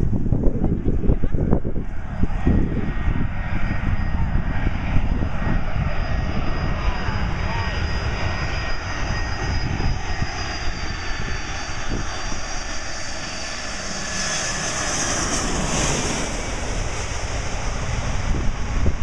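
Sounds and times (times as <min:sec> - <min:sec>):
jet engines roaring overhead: 0:00.0 - 0:19.0.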